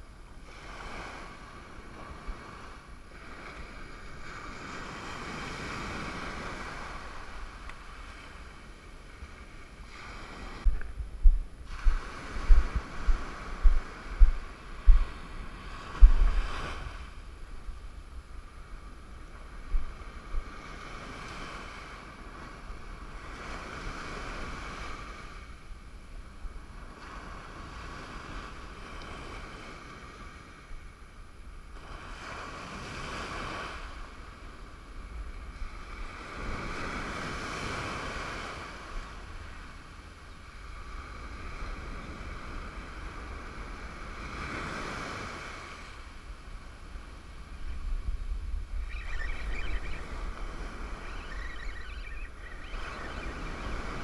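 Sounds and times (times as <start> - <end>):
ocean surf washing on beach: 0.0 - 54.0
wind on microphone: 0.0 - 54.0
sharp low microphone bumps: 10.7 - 15.2, 15.9 - 16.5.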